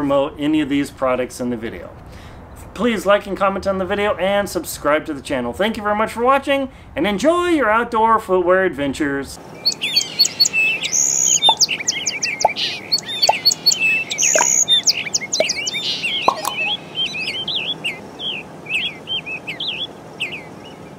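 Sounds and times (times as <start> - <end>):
birds chirping: 9.4 - 20.9.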